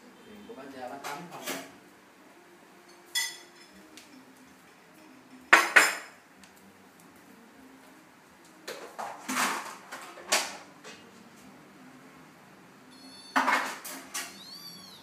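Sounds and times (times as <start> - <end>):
high squeak: 12.9 - 13.6, 14.2 - 15.0.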